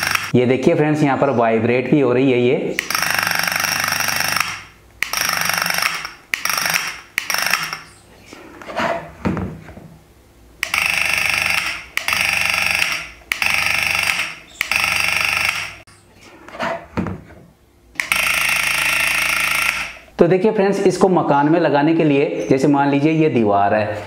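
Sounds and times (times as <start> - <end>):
buzzing motor doorbell: 10.7 - 14.2.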